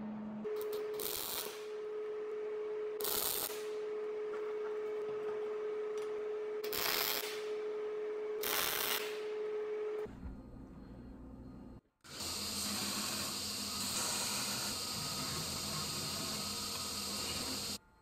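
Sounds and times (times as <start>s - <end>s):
welder arc crackling: 0.7s - 1.7s, 3.0s - 3.7s, 6.6s - 7.5s, 8.4s - 9.2s.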